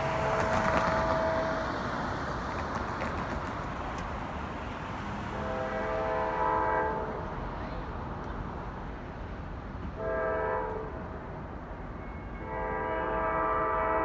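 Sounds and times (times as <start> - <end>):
distant locomotive horn: 0.0 - 2.0, 5.2 - 7.6, 9.9 - 11.2, 12.0 - 14.0
car driving across tracks: 0.0 - 14.0.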